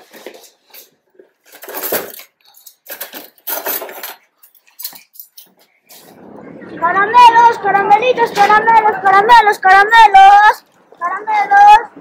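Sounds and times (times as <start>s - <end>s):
dishes and cutlery clinking: 0.0s - 6.1s.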